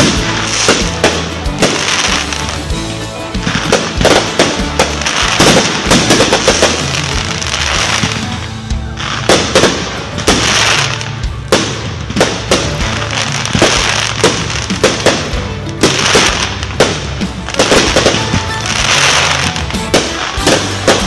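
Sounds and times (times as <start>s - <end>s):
firework crackling and hissing: 0.0s - 21.0s
firework shells bursting: 3.4s - 8.3s.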